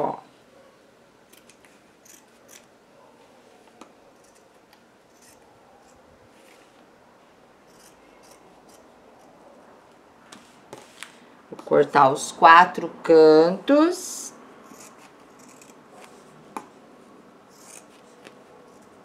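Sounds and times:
scissors snipping fabric: 14.7 - 15.8, 17.5 - 18.0.

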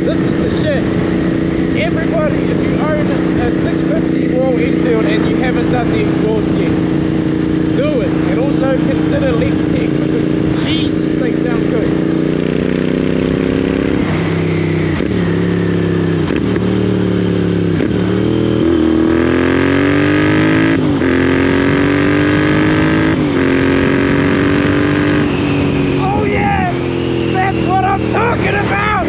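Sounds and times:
gear upshifts: 0.0 - 29.0
motorcycle engine accelerating: 0.0 - 29.0.

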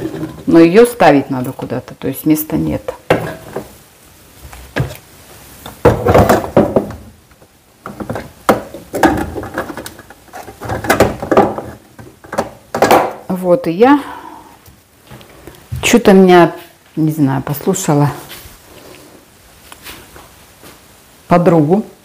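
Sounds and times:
items knocking in a cupboard: 3.1 - 3.8, 4.7 - 5.0, 5.7 - 7.2, 7.8 - 13.2.

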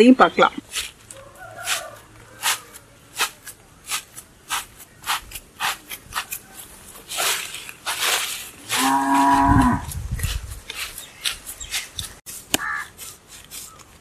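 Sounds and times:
bare feet squelching wet clay: 0.6 - 14.0
plastic sheet rustling: 4.5 - 14.0.

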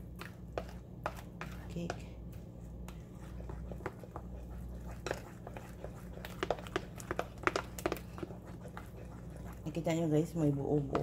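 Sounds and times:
steady low hum: 0.0 - 11.0
spatula scraping glass bowl: 3.2 - 11.0.

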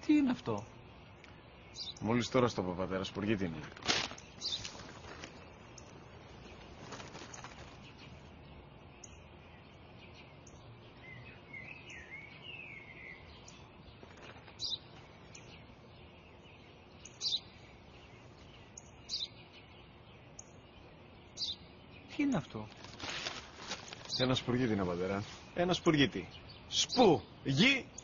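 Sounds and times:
low outdoor background: 0.0 - 28.0
sparrow chirping: 0.0 - 28.0.

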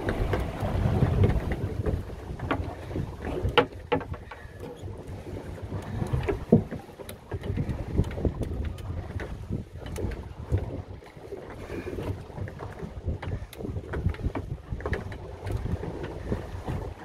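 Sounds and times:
fishing boat noise: 0.0 - 17.0
wind rumbling on microphone: 0.0 - 17.0.

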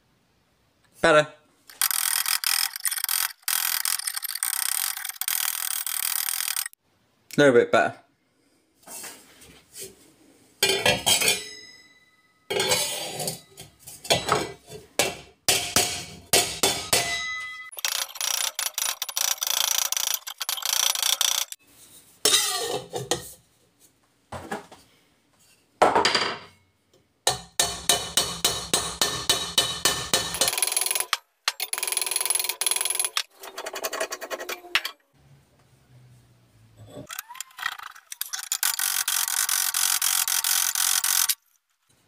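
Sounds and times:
hammer striking ringing sheet metal: 11.1 - 12.5, 15.5 - 17.7.

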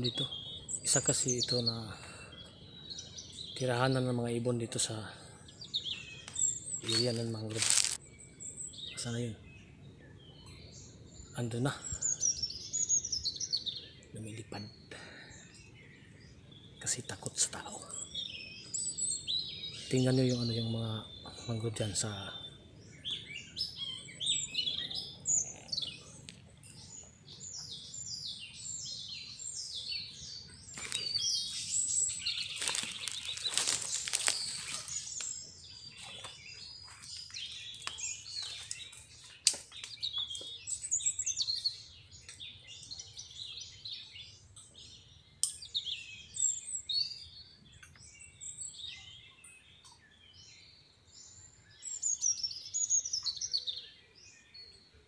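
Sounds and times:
small birds chirping: 0.0 - 55.0
rustling rush: 6.8 - 8.0, 30.7 - 35.4.

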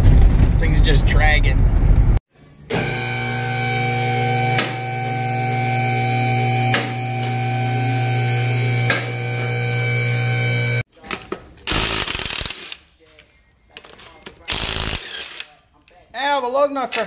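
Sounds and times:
hydraulic pump motor humming: 2.7 - 10.8.

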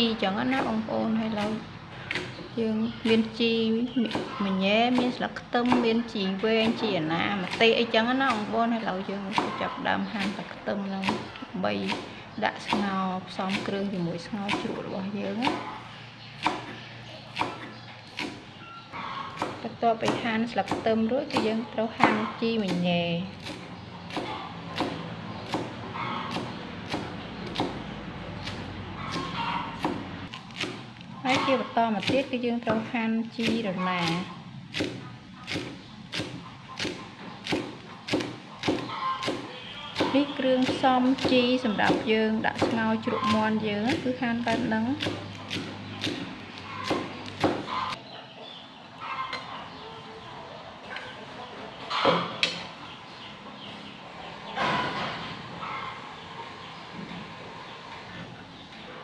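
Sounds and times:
cleaver chopping on wooden board: 23.4 - 27.8, 33.4 - 47.7.

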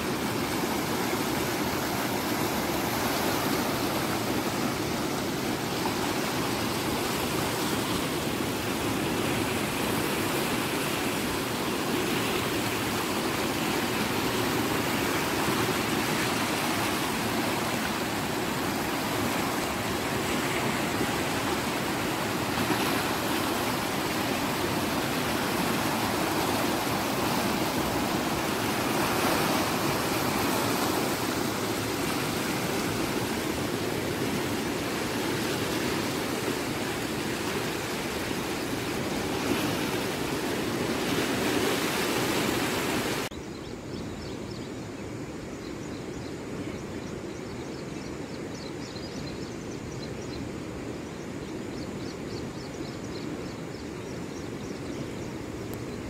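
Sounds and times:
flooded river rushing: 0.0 - 43.3.

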